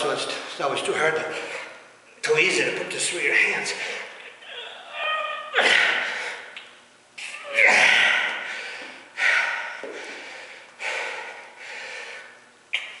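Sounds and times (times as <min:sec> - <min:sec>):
man breathing hard: 0:05.6 - 0:06.6, 0:07.7 - 0:12.4.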